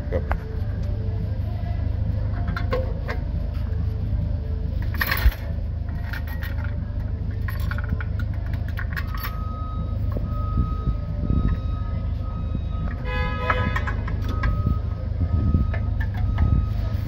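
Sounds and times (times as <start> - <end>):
steady low hum: 0.0 - 17.0
metal parts clinking and scraping: 2.2 - 3.8, 4.6 - 9.6, 12.9 - 15.0.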